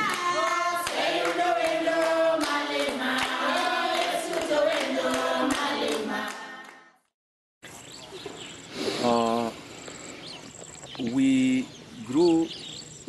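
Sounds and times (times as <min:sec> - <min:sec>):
voices singing together: 0:00.0 - 0:07.0.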